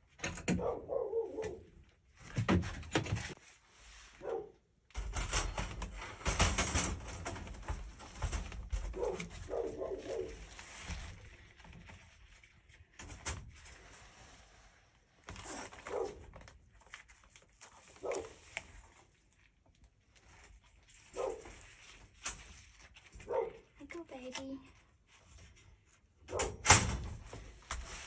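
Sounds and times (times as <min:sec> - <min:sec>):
metal wire trap rattling: 0:05.0 - 0:09.2.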